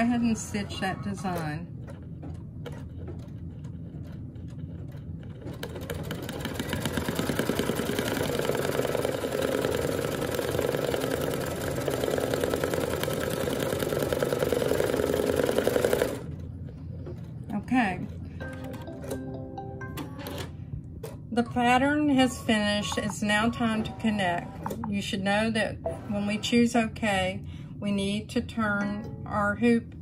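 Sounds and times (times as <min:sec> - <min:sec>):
embroidery machine stitching: 0:02.6 - 0:16.4.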